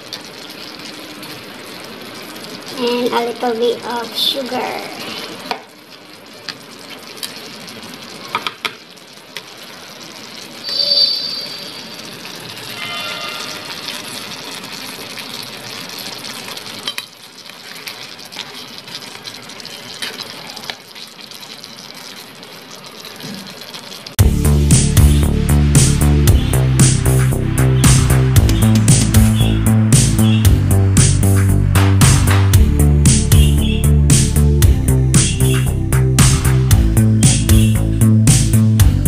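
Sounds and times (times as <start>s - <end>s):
food sizzling and bubbling in pan: 0.0s - 39.0s
brief high-pitched tones: 10.6s - 14.3s
music: 24.2s - 39.0s.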